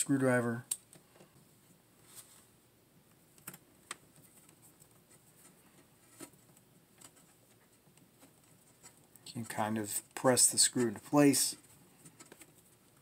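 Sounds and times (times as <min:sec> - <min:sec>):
light scraping: 0:07.0 - 0:12.7.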